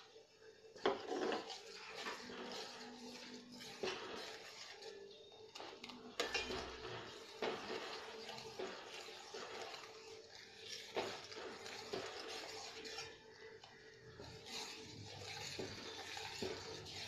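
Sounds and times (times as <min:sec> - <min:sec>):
metal spoon scraping pot: 0:00.7 - 0:17.0
spoon clinking against pot: 0:05.8 - 0:10.0.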